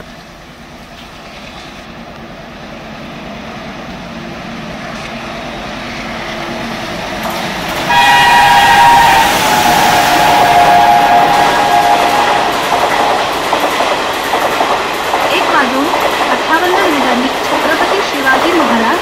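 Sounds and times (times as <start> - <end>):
diesel locomotive approaching: 0.0 - 19.0
train horn multi-tone: 7.9 - 13.0.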